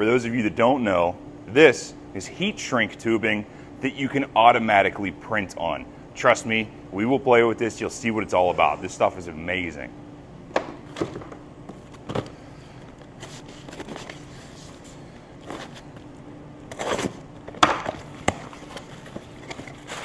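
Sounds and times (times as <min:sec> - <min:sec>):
faint steady hum: 0:00.0 - 0:20.0
cardboard rustling and scraping: 0:13.0 - 0:16.0, 0:16.7 - 0:17.3, 0:17.9 - 0:20.0.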